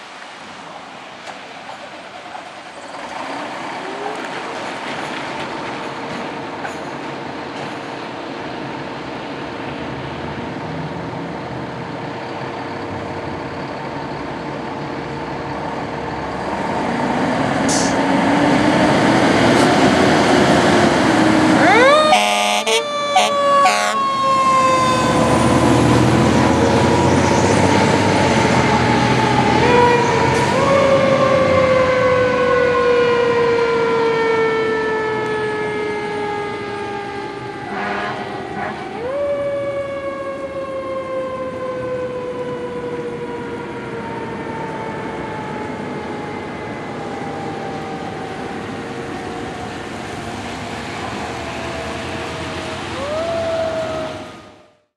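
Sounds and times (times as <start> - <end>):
air horn blasts: 21.6 - 24.0, 37.7 - 38.8.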